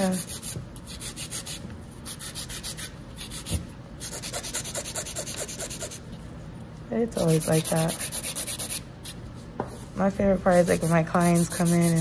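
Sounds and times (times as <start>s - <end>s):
nail file rasping on nails: 0.0s - 6.0s, 7.3s - 8.8s, 10.7s - 12.0s.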